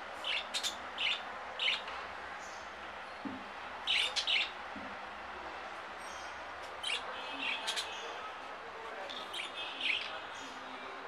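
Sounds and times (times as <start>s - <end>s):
budgerigars chirping: 0.2s - 1.9s, 3.9s - 4.6s, 9.3s - 10.2s.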